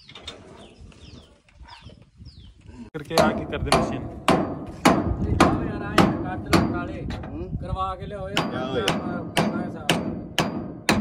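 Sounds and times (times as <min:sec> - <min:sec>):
small birds chirping: 0:00.0 - 0:02.9
hammer striking metal: 0:03.2 - 0:06.9, 0:08.3 - 0:11.0.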